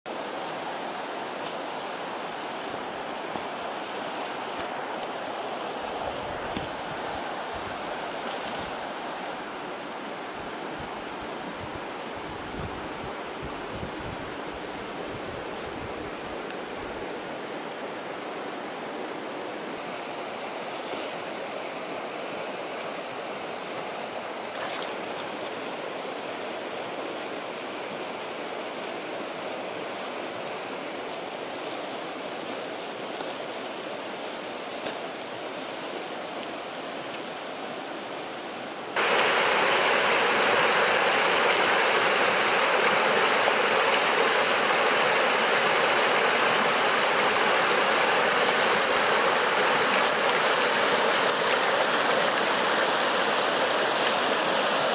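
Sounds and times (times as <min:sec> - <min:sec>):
water rushing over stones: 0:00.1 - 0:15.5, 0:21.0 - 0:26.8, 0:39.0 - 0:54.9
stream running over gravel: 0:00.3 - 0:10.7, 0:22.9 - 0:25.8, 0:39.0 - 0:54.9.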